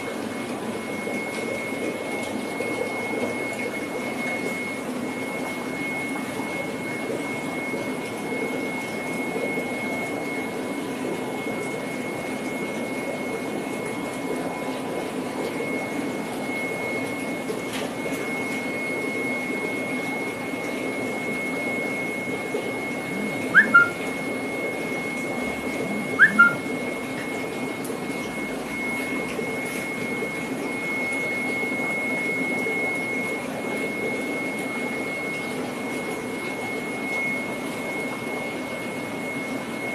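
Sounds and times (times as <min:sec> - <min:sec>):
fish tank pumps humming: 0:00.0 - 0:39.9
thin high whine: 0:15.5 - 0:39.9
short rising chirps: 0:23.6 - 0:24.0, 0:26.2 - 0:26.6.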